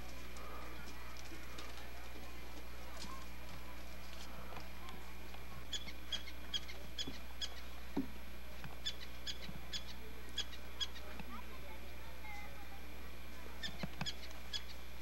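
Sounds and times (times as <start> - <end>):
steady low hum: 0.0 - 15.0
small bird chirping: 5.6 - 7.7, 8.8 - 11.1, 13.6 - 14.9.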